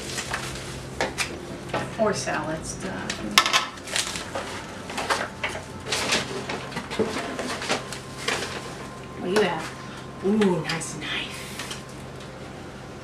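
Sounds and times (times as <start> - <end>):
cardboard and paper rustling: 0.0 - 1.3, 3.8 - 9.8.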